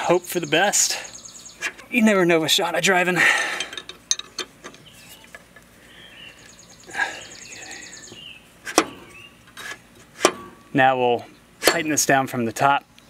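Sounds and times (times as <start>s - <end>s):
sharp metal clank: 10.2s - 10.7s.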